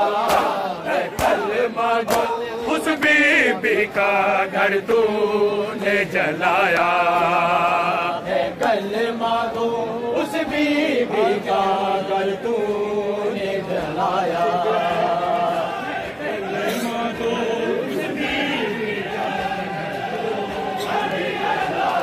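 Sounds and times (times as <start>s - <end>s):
men chanting together: 0.0s - 22.0s
hands slapping chests: 0.2s - 2.4s.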